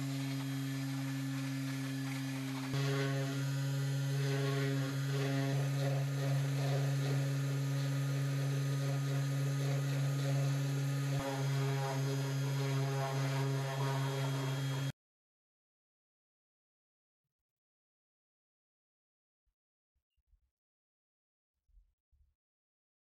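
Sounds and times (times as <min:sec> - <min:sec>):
rotary tool grinding wood: 0:00.0 - 0:14.9.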